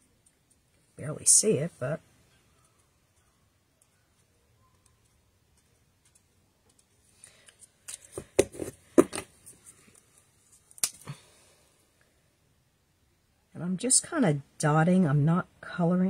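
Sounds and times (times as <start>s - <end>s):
marker barrels knocking: 8.1s - 9.3s.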